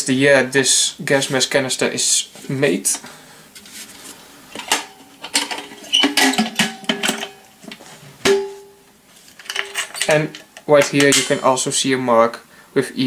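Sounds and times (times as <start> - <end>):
metal canister lid clanking: 4.5 - 8.6, 9.4 - 11.6.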